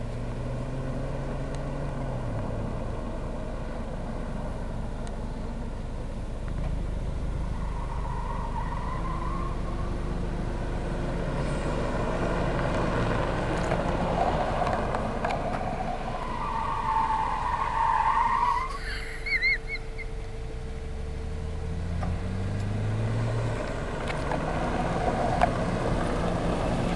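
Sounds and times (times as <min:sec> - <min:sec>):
car engine and tyre noise: 0:00.0 - 0:26.9
high whine: 0:15.0 - 0:22.3
tyre chirps: 0:18.5 - 0:20.4.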